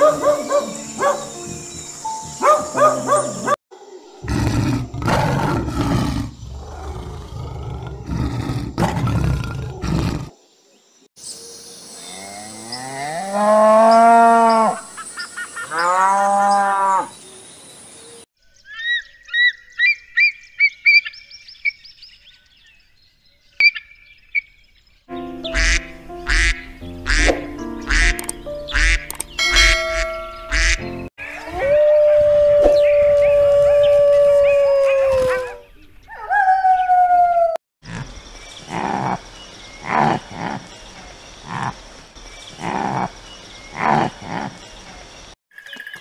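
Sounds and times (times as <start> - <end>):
goose calls: 25.5 - 27.3
goslings peeping: 25.5 - 31.4.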